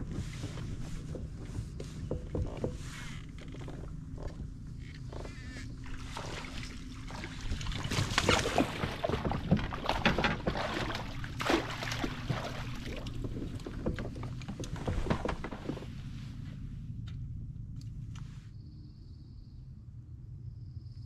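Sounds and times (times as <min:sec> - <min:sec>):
knocking and rattling on kayak: 0:00.0 - 0:16.2
low steady rumble: 0:00.0 - 0:21.0.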